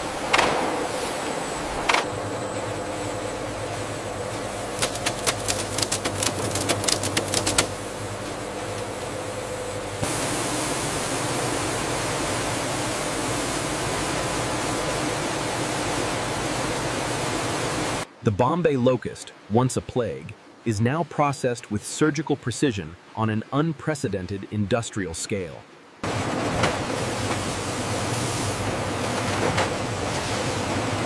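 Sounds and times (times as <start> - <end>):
conveyor machinery humming: 0.0 - 18.1, 26.0 - 31.0.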